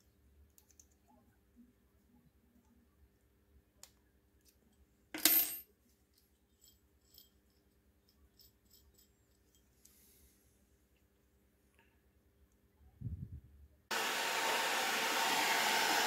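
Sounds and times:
metal piece clattering on stone: 5.2 - 5.7.

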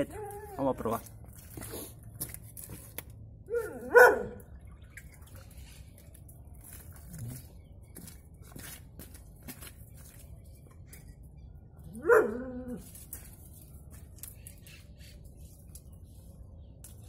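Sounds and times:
dog barking: 3.5 - 4.4, 12.0 - 12.4.

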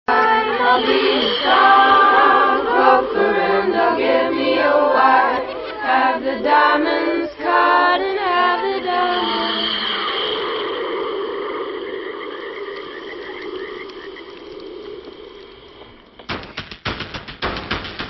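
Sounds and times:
choir chanting unaccompanied: 0.1 - 13.8
high-pitched animal chorus: 0.1 - 16.2.

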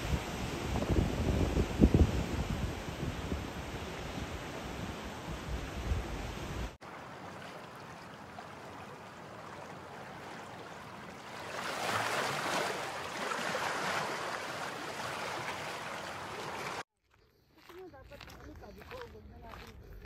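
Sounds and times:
wind rumbling on microphone: 0.0 - 6.8.

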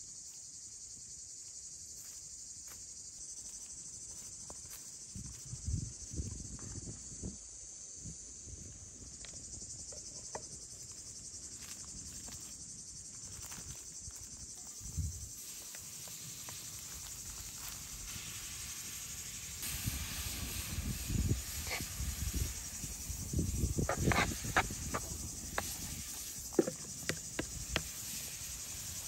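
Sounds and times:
high-pitched insect chorus: 0.0 - 29.0
footsteps on dry leaves: 11.5 - 18.2
wood fire crackling: 14.4 - 29.0
meat sizzling in a hot pan: 14.7 - 29.0.

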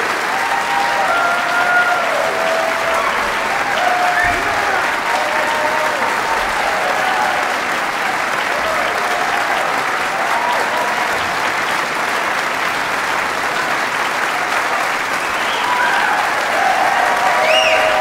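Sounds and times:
audience applauding: 0.0 - 18.0
audience cheering: 0.0 - 18.0.

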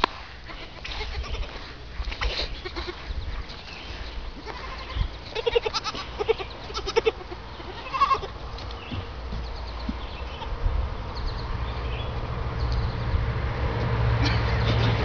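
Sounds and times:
goat kids bleating: 0.4 - 8.4.

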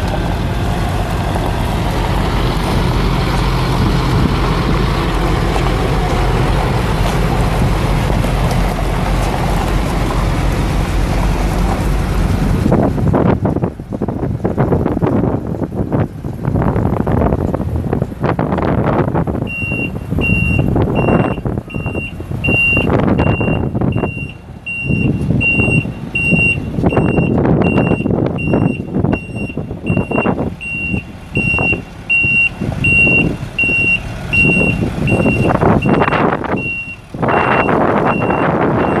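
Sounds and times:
diesel engine rumbling: 0.0 - 39.0
truck backup alarm beeping: 19.4 - 39.0.

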